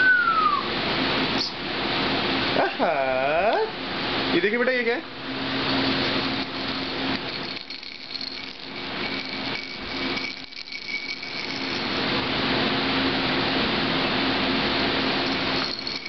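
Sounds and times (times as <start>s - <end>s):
steady whirring hum: 0.0s - 16.0s
baby rattle shaking: 5.6s - 12.0s, 15.2s - 16.0s.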